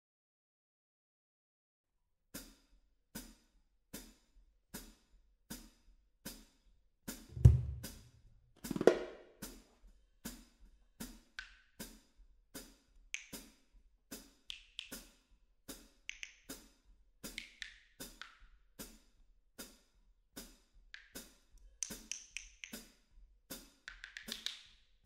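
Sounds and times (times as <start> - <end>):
snare drum strikes: 7.3 - 8.1, 8.7 - 9.2
hi-hat strikes: 7.3 - 8.2.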